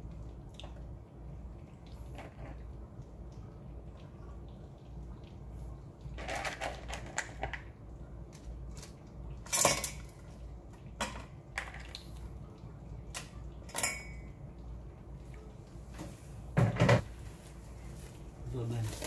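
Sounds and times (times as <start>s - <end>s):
shells clattering in a metal pot: 8.8s - 10.2s, 13.7s - 14.2s.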